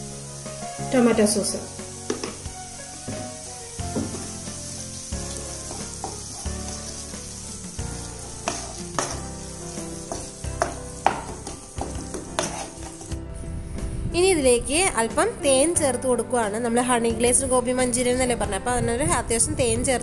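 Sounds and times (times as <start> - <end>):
food sizzling in frying pan: 0.0 - 13.5
spatula scraping a pan: 4.0 - 13.1.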